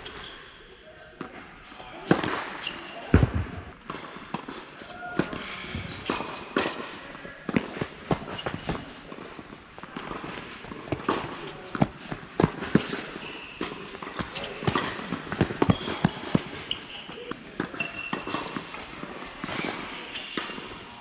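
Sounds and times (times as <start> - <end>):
sneaker squeaks: 0.0 - 0.6, 1.6 - 3.7, 4.8 - 11.3, 11.9 - 21.0
footsteps: 1.2 - 16.8
tennis balls struck and bouncing: 1.2 - 20.9.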